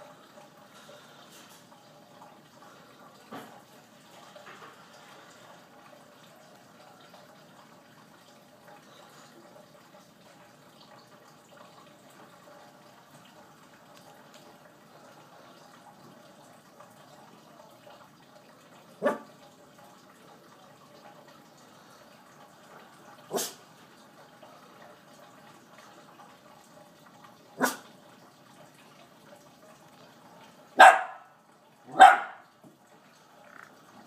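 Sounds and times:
small dog barking: 19.0s - 19.3s, 27.6s - 27.8s, 30.8s - 31.3s, 31.9s - 32.4s.

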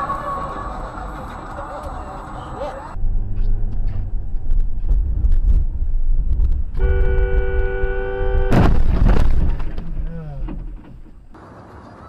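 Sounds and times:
car engine rumble and road noise: 0.0s - 12.0s
two-tone car horn: 6.8s - 8.7s.

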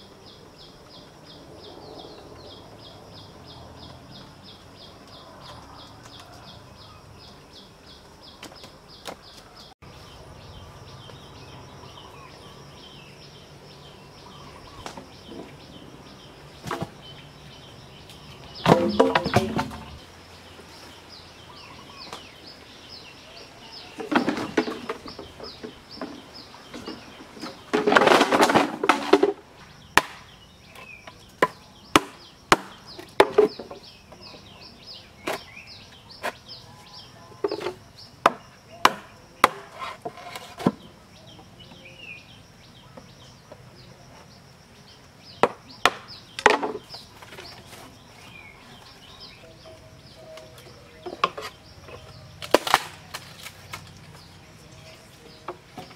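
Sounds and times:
knife chopping bamboo: 18.6s - 20.0s, 31.4s - 33.4s, 38.2s - 40.4s
rough clattering: 18.6s - 20.0s.

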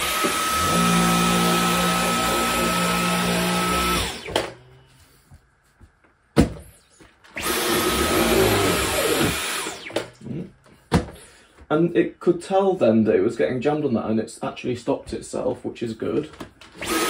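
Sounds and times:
vacuum cleaner whining: 0.0s - 5.1s, 6.7s - 10.4s, 16.7s - 17.0s.

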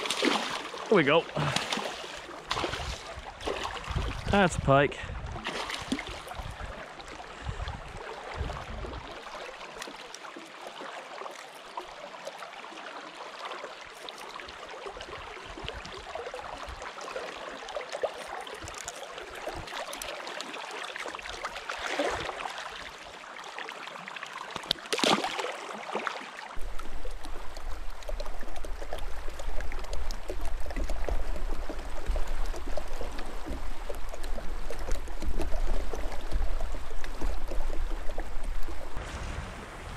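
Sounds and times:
fish splashing: 0.0s - 4.2s, 5.4s - 7.3s, 24.6s - 39.9s
low rumble: 39.0s - 39.9s.

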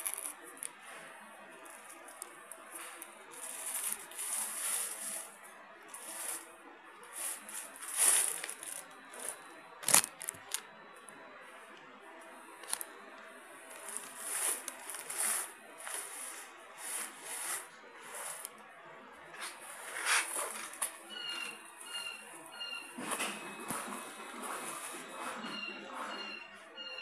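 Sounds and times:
labels rustling and crinkling: 0.0s - 5.4s, 7.1s - 10.7s, 13.7s - 18.6s.

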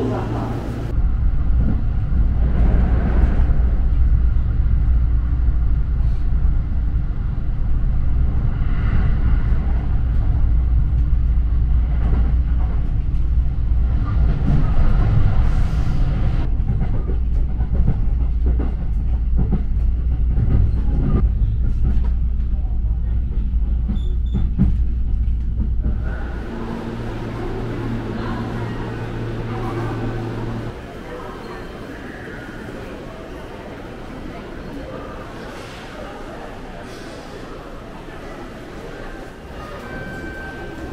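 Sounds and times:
train wheels on rails: 8.6s - 40.9s.

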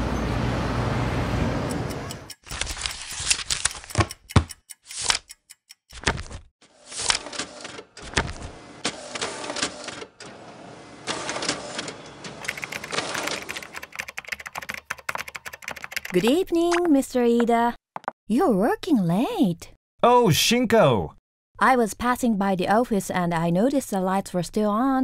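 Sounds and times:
fast typing clatter: 2.3s - 4.1s, 12.4s - 16.2s.

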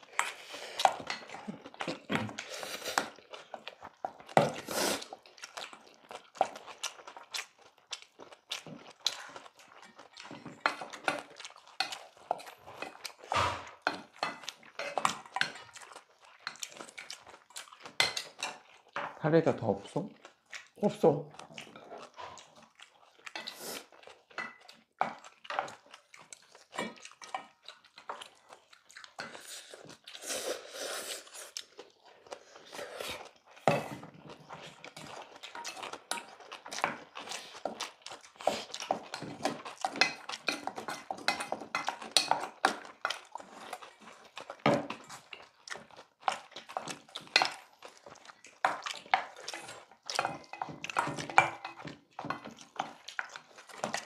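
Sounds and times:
chewing: 0.0s - 19.2s, 19.8s - 54.0s
utensils clinking on steel bowls: 38.6s - 42.8s, 48.6s - 53.0s.

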